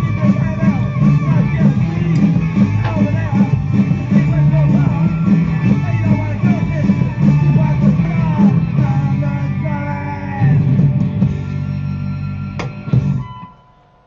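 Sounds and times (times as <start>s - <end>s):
person singing: 0.0s - 11.0s
punk rock song: 0.0s - 13.5s
electric guitars: 0.0s - 13.6s.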